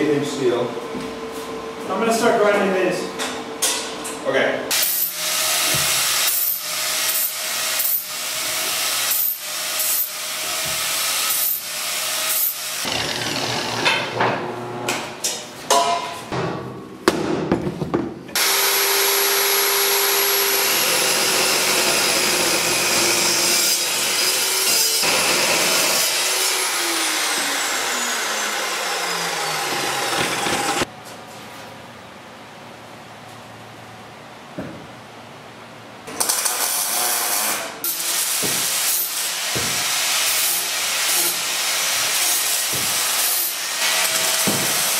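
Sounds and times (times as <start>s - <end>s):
angle grinder grinding steel: 4.7s - 14.2s, 18.4s - 30.9s
chop saw cutting steel: 4.7s - 14.2s, 18.4s - 30.9s, 36.2s - 44.9s.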